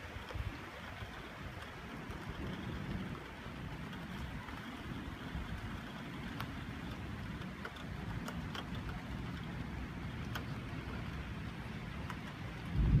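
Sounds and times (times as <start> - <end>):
steady rain: 0.0 - 13.0
low thunder rumble: 12.6 - 13.0.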